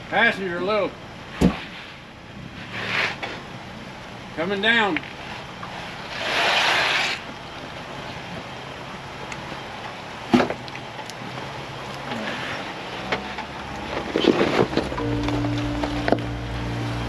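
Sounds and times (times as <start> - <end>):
engine running low: 0.0 - 17.0.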